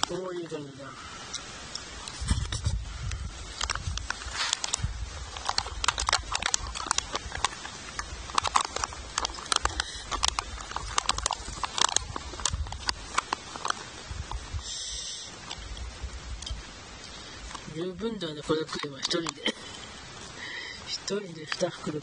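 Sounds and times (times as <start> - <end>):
plastic packet crinkling: 3.3 - 14.7, 17.4 - 20.0, 20.9 - 22.0.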